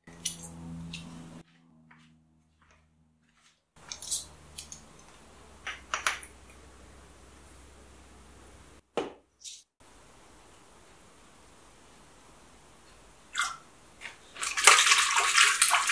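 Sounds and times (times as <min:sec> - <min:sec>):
faint steady hum: 0:03.8 - 0:08.8, 0:09.8 - 0:14.5.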